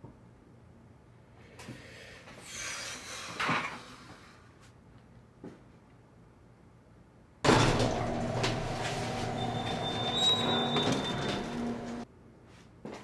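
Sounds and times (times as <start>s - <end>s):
subway train running: 7.5s - 12.0s
thin high whine: 7.5s - 12.0s.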